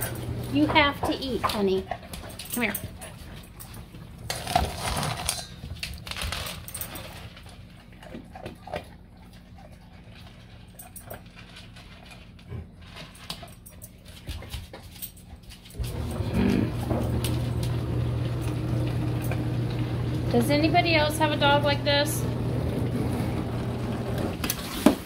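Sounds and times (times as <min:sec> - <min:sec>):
kibble rattling in metal bowl: 0:00.0 - 0:08.8, 0:09.4 - 0:16.2
dog chewing kibble: 0:00.0 - 0:20.0.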